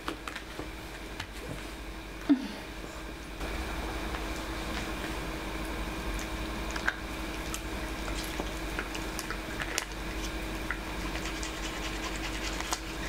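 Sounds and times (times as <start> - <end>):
steady low hum: 0.0 - 13.0
toothbrush wet squishing: 6.8 - 13.0.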